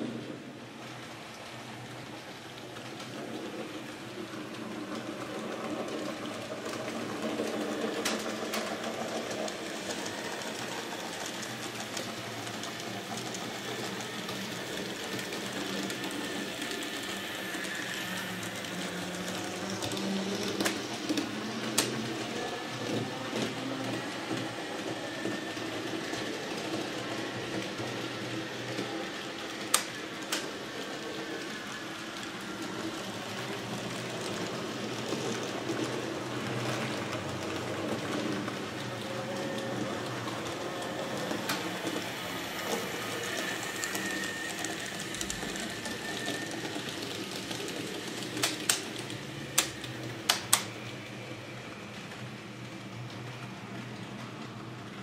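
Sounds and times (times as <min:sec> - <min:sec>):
model train motors whirring: 0:00.0 - 0:55.0
sharp track clicks: 0:41.4 - 0:50.7.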